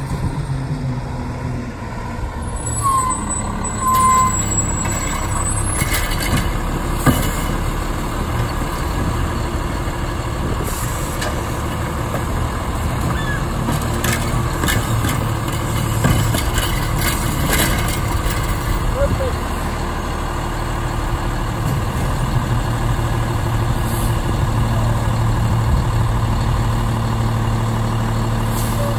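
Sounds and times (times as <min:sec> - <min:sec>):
garbage truck diesel engine running: 0:00.0 - 0:28.9
sharp clunks and knocks: 0:04.8 - 0:07.7, 0:13.0 - 0:18.6.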